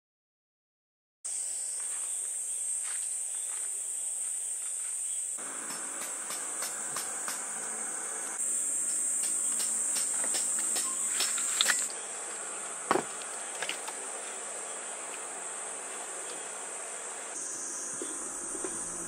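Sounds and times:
insects singing: 1.3 - 19.0
sharp knock: 5.6 - 7.4
sharp clicks: 5.6 - 7.5.

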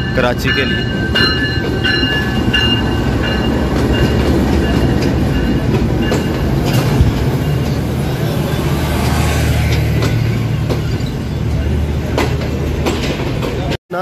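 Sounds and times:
train wheels rumbling on rails: 0.0 - 13.8.

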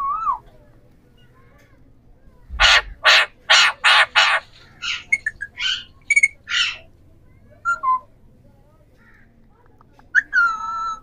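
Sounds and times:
parakeet squawks and chirps: 2.5 - 6.9
parakeets screeching: 2.6 - 6.9.

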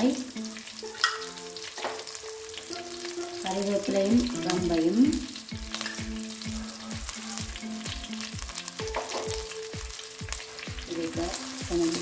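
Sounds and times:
food sizzling in hot oil: 0.0 - 12.0
music with steady beat: 0.0 - 12.0.

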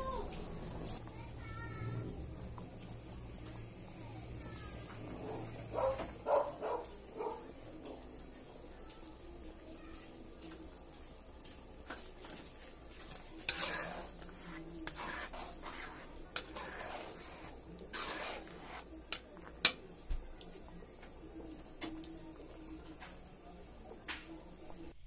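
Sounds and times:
spatula swishing through sauce: 11.0 - 19.8
spatula knocking pan: 13.5 - 19.8.

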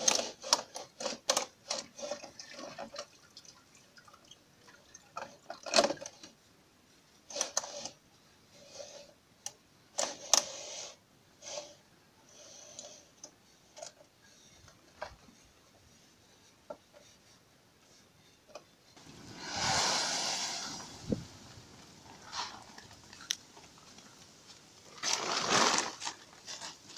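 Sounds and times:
plastic clicking and scraping: 0.0 - 2.3
rushing noise: 19.0 - 23.4.

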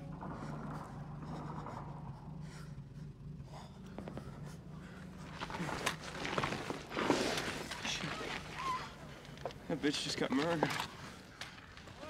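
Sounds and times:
heavy breathing: 0.0 - 8.0
low steady hum: 0.0 - 12.0
gear scuffling and rustling: 5.1 - 12.0.

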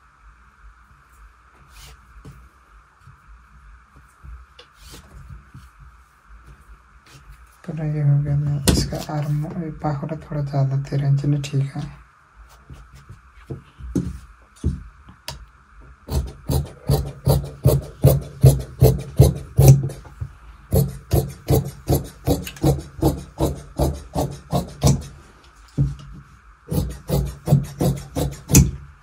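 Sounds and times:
scissors snipping fabric: 20.7 - 25.1.

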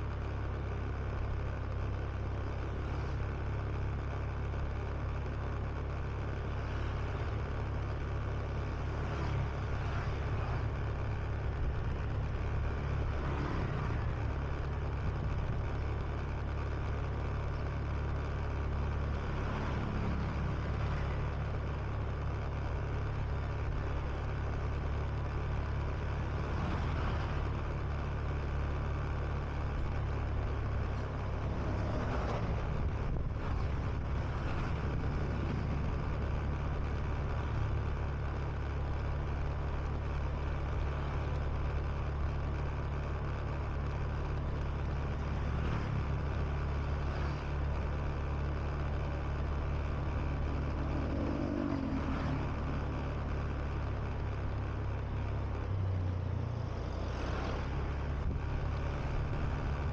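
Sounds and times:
passing traffic: 0.0 - 59.9
wind and road noise: 0.0 - 59.9
scooter engine running: 32.4 - 59.9.

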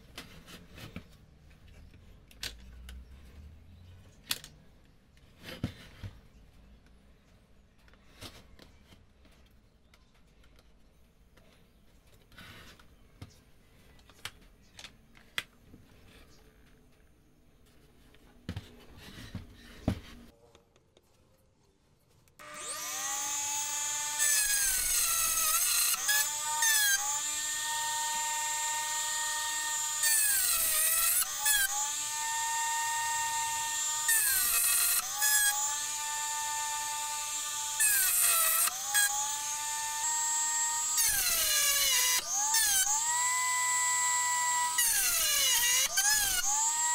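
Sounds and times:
rotary tool whining: 22.4 - 46.9.

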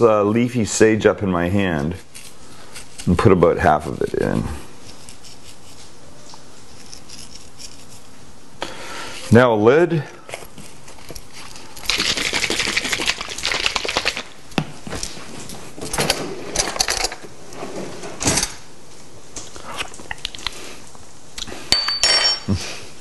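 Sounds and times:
bottle shaken with rattling slosh: 10.9 - 14.3.

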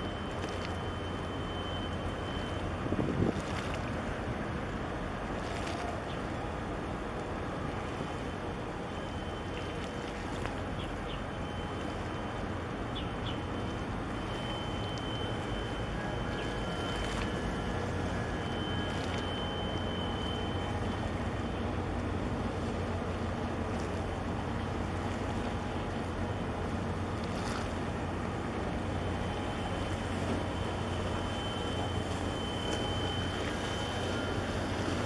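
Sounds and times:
faint whistle-like tones: 0.0 - 2.7, 8.2 - 21.7, 29.0 - 35.0
wind rumble on microphone: 2.7 - 6.2.

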